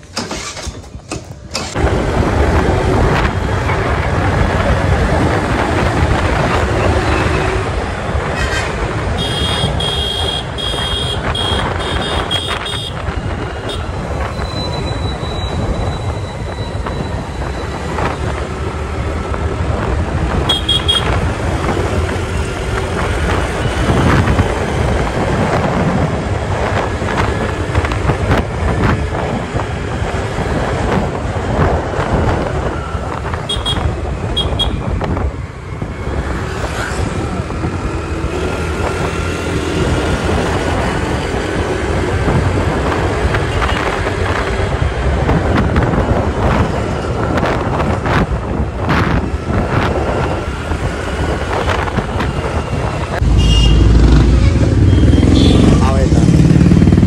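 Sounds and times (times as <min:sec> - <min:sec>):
scooter engine: 0:00.0 - 0:14.2, 0:49.3 - 0:57.0
passing vehicles: 0:00.0 - 0:57.0
wind rush on microphone: 0:01.3 - 0:57.0.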